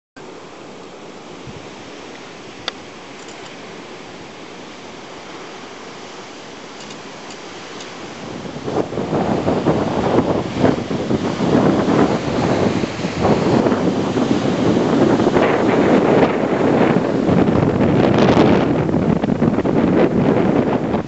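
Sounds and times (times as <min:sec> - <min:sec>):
sea surf: 0:00.2 - 0:21.0
waves breaking on rocks: 0:00.2 - 0:21.0
wind: 0:00.2 - 0:21.0
wind buffeting microphone: 0:00.4 - 0:21.0
sharp click: 0:06.8 - 0:07.9.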